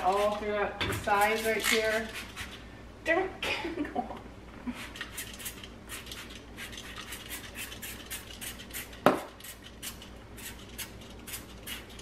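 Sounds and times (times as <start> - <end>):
spray bottle squirting: 5.0 - 12.0.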